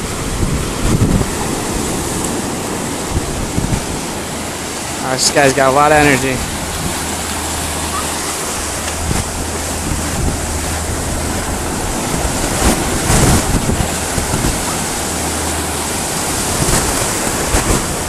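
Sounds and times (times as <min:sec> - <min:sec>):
ocean surf breaking: 0:00.0 - 0:18.0
wind buffeting microphone: 0:00.0 - 0:18.0.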